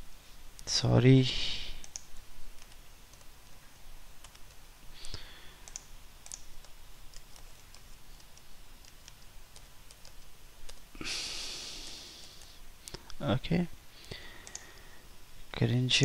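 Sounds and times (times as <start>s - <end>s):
keyboard typing clicks: 1.8s - 3.6s, 4.2s - 10.8s, 14.4s - 14.8s.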